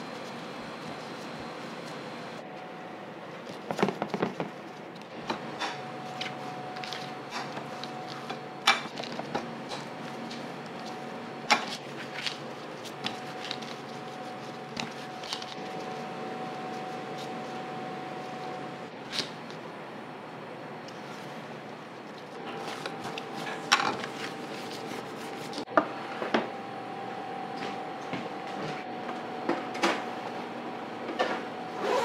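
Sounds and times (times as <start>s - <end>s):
steady machine hum: 0.0s - 32.0s.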